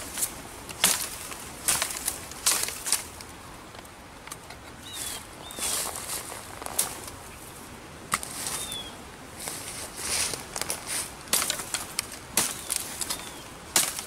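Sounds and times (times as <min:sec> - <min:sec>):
machete chopping wet branches: 0:00.0 - 0:03.1, 0:11.3 - 0:14.0
rustling in brush: 0:04.6 - 0:14.0.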